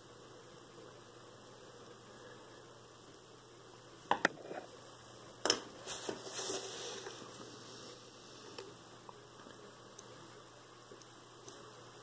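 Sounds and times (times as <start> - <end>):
faint steady hum: 0.0 - 12.0
hand rustling paper: 5.8 - 7.4.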